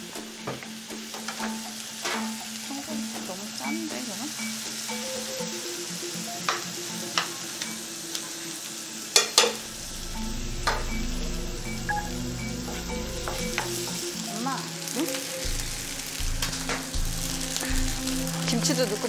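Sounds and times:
food sizzling in frying pans: 0.0 - 19.0
utensils clinking against pans: 0.2 - 5.6, 9.1 - 9.6.

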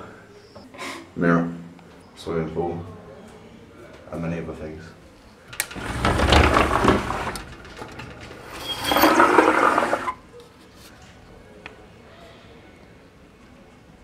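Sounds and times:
wooden shutters scraping open: 5.5 - 10.2.

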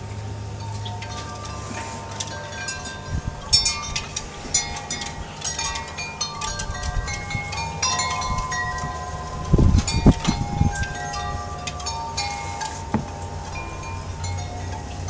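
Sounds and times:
chimes ringing: 0.4 - 15.0.

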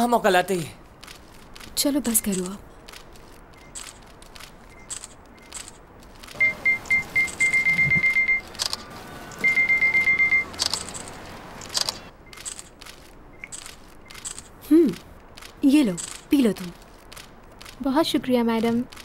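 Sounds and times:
high-pitched electronic beeps: 6.4 - 8.5
camera shutter clicks: 8.5 - 9.5, 10.5 - 14.5.

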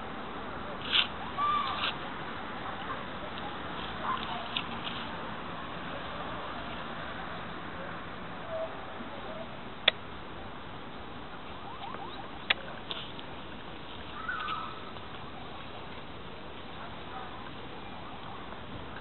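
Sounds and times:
outdoor background hiss: 0.0 - 19.0.

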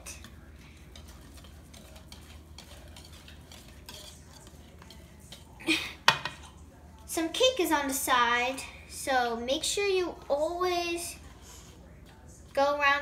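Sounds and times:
whisk beating batter: 0.0 - 8.3
whisk clicking against bowl: 0.9 - 6.4.

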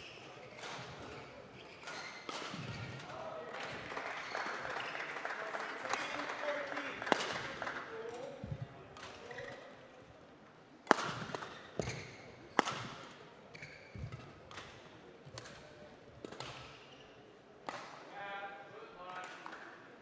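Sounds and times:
rackets hitting shuttlecock: 1.8 - 3.1, 7.1 - 7.5, 10.8 - 16.8, 17.6 - 18.0.

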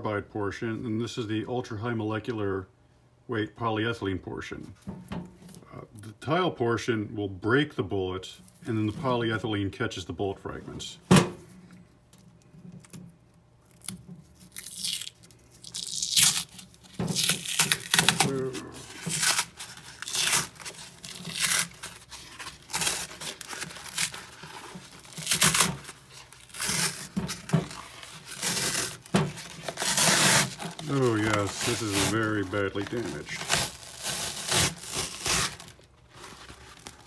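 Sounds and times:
liner sheet tearing from plate: 13.7 - 37.0.

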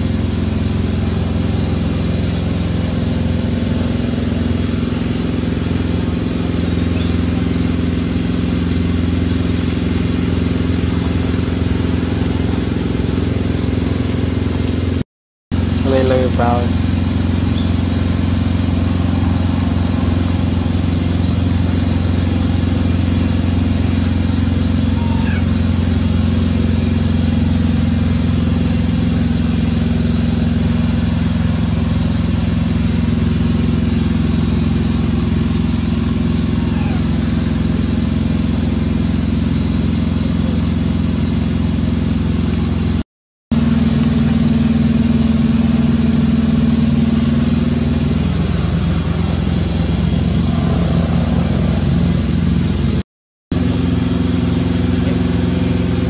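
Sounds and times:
motor humming: 15.6 - 41.5, 43.6 - 53.0.

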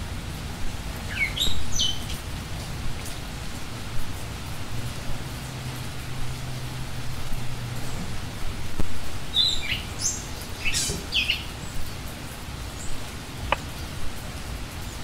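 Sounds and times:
birds chirping: 9.2 - 11.9.

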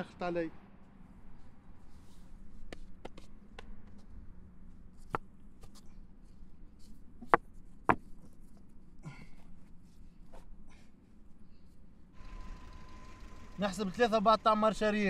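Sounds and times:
stones clacking together: 7.2 - 8.2.

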